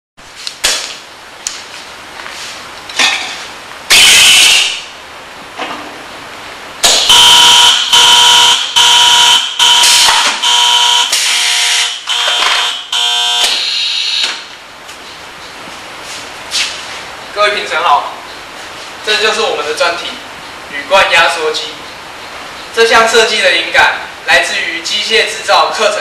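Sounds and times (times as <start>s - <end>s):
safety buzzer beeps: 3.9s - 4.8s, 7.1s - 14.3s.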